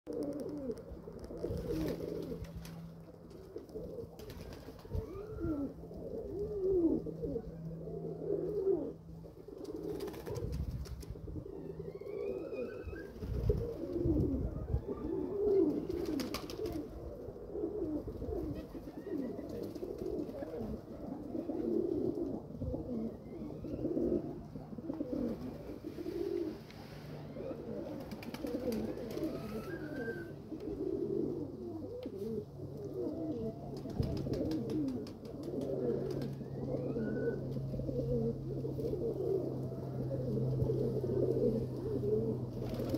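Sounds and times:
pigeons cooing: 0.1 - 42.9.

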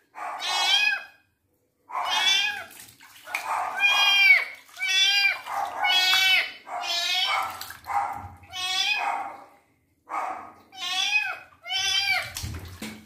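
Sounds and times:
kitten meowing: 2.0 - 2.7, 3.8 - 7.5, 8.5 - 9.0, 10.8 - 12.4.

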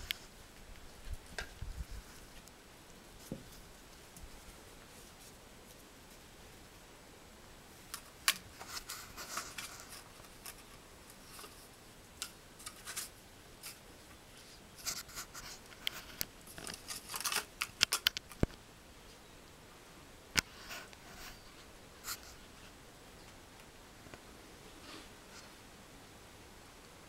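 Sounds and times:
puppies scratching and rustling: 8.0 - 11.8, 12.6 - 18.4.

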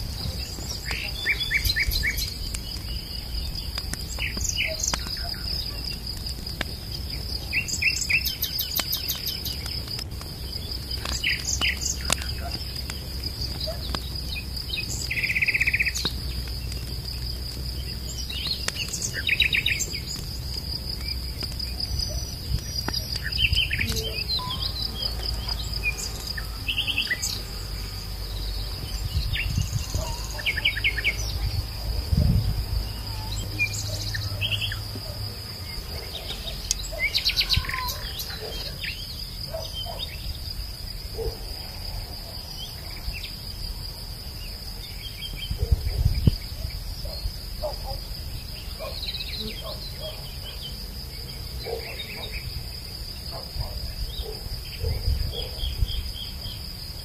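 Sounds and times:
insects trilling: 0.0 - 57.0.

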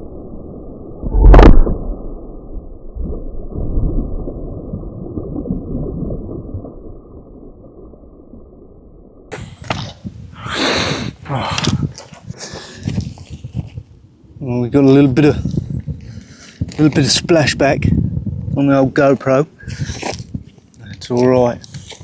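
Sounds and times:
low rumbling water splashing: 0.0 - 10.4
deep boom of bullet impact: 1.0 - 4.8.

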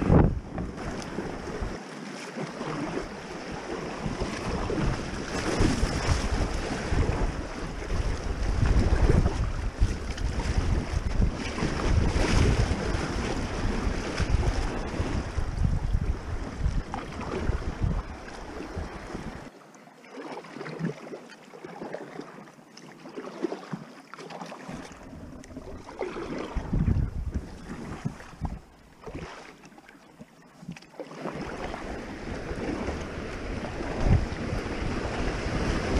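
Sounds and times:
wind buffeting microphone: 0.0 - 1.8, 3.6 - 19.5, 24.9 - 28.7, 31.6 - 35.9
paddle splashes: 0.0 - 35.9.

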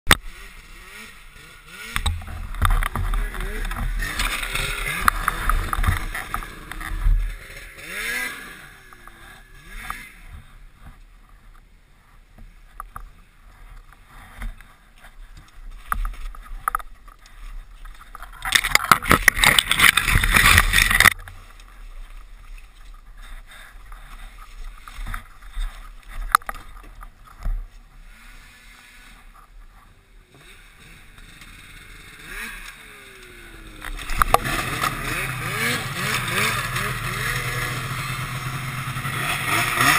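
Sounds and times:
snowmobile engine running: 0.1 - 11.5, 18.2 - 21.2, 27.1 - 39.9
branches brushing past: 0.2 - 10.8, 15.2 - 29.2.

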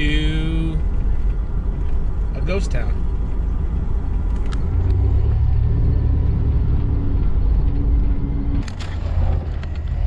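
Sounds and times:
van engine and road rumble: 0.0 - 10.0
droning hum: 2.9 - 10.0.

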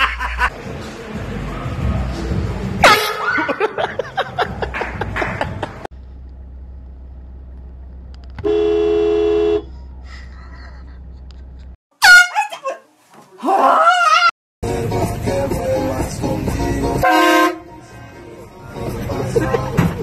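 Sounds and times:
car horn blast: 2.8 - 3.3, 8.4 - 9.7, 17.0 - 17.7
loud high falling cry: 13.4 - 14.4.

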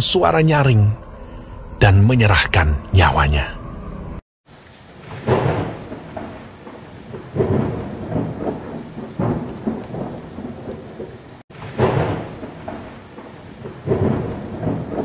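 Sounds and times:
steady rain: 4.4 - 15.0
thunder rolling: 5.0 - 15.0.

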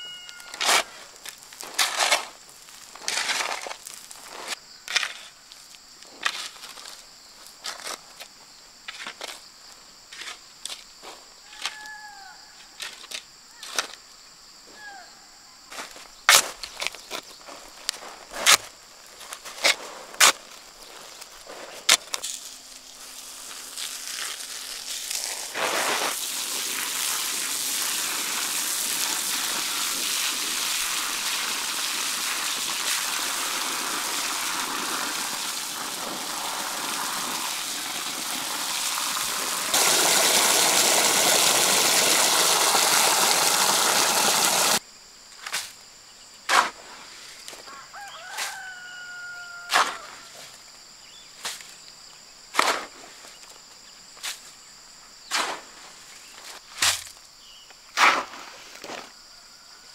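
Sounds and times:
hose water pouring onto sand: 22.3 - 44.8
rooster crowing: 47.7 - 50.4.

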